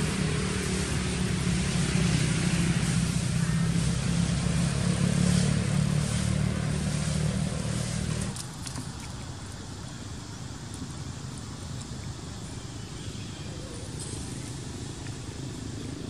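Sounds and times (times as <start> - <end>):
vehicle engine humming: 0.0 - 9.3
outdoor background noise: 0.0 - 16.0.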